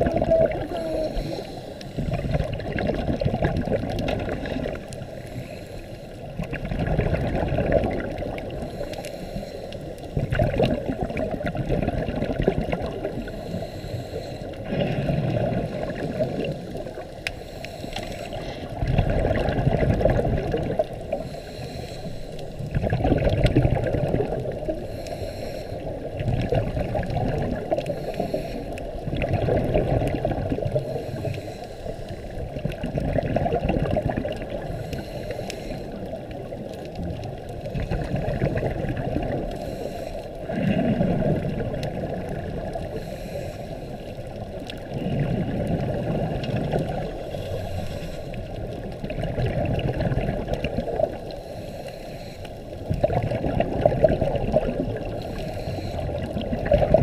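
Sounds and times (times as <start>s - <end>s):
bubbles gurgling underwater: 0.0s - 5.4s, 6.2s - 9.0s, 9.9s - 13.4s, 14.5s - 17.2s, 18.2s - 21.4s, 22.5s - 24.9s, 25.8s - 31.4s, 32.1s - 35.0s, 35.9s - 39.6s, 40.3s - 43.0s, 44.0s - 51.4s, 52.7s - 57.0s
diver breathing through regulator: 0.5s - 2.6s, 4.6s - 6.3s, 8.5s - 10.3s, 13.1s - 19.0s, 21.0s - 22.8s, 24.7s - 26.1s, 27.6s - 29.0s, 30.7s - 32.4s, 34.3s - 36.2s, 37.6s - 41.3s, 42.1s - 44.3s, 44.9s - 48.8s, 50.8s - 53.1s, 55.0s - 56.4s.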